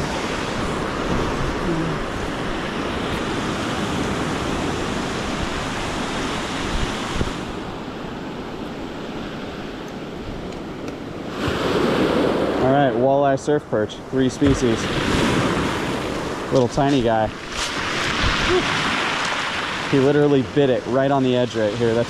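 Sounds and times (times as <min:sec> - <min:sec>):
wind rumbling on microphone: 0:00.0 - 0:13.1, 0:14.4 - 0:22.0
surf breaking on cobble beach: 0:11.2 - 0:13.1, 0:14.1 - 0:22.0.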